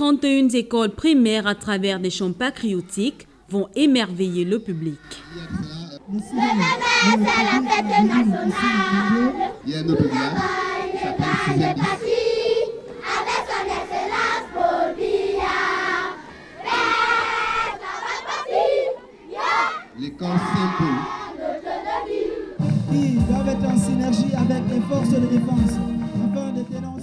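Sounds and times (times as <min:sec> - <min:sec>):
children singing together: 0:05.2 - 0:22.6.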